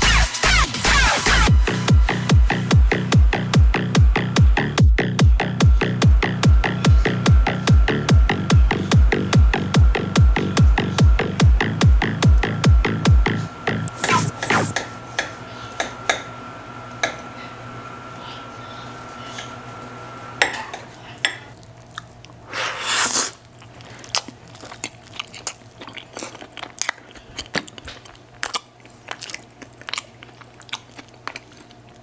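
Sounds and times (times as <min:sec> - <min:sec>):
close chewing: 0:21.5 - 0:22.4, 0:23.2 - 0:32.0.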